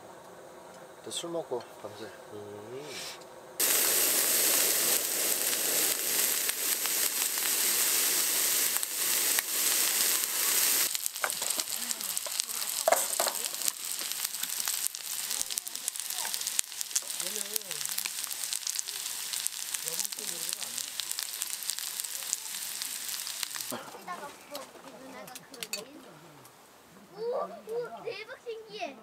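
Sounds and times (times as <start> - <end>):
squid sizzling in hot oil: 3.6 - 23.8.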